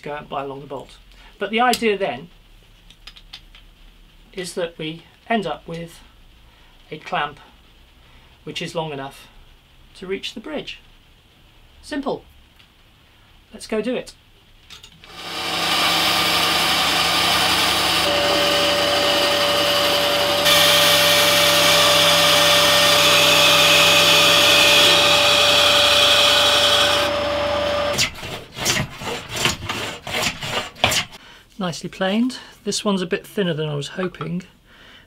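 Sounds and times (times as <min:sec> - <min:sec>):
band saw cutting wood: 0:15.0 - 0:31.2
high saw whine: 0:15.1 - 0:28.1
hand plane strokes on wood: 0:15.2 - 0:31.2.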